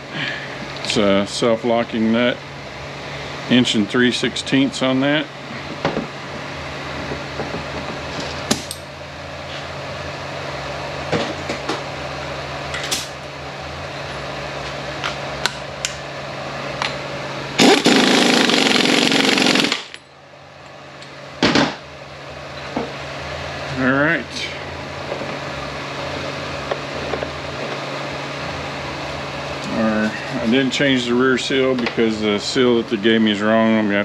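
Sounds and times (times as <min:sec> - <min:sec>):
steady shop hum: 0:00.0 - 0:34.0
impact wrench hammering: 0:17.6 - 0:20.1.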